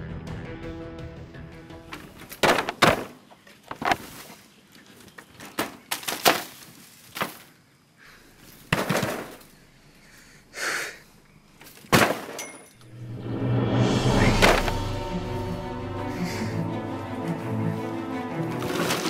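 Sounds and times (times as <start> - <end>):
bamboo walls and wooden slats rattling: 1.8 - 7.6, 8.4 - 9.6, 11.6 - 12.8, 18.5 - 19.0
loud breath: 9.6 - 11.2, 15.9 - 16.8.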